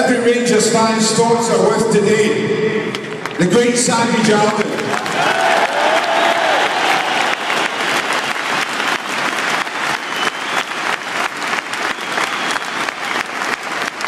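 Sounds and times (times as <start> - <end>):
stadium crowd applauding: 2.9 - 14.0.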